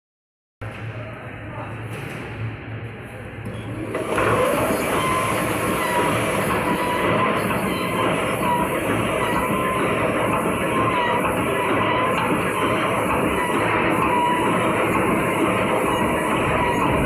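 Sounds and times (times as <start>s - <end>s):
wire mesh machine running: 3.8s - 17.0s.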